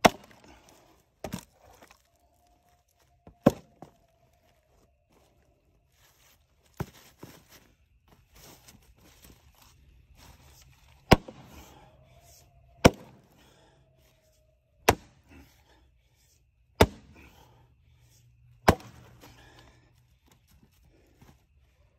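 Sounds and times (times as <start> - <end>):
axe splitting firewood: 0.0 - 2.0, 3.2 - 4.0, 11.0 - 11.6, 12.8 - 13.2, 14.8 - 15.4, 16.8 - 17.3, 18.6 - 19.6.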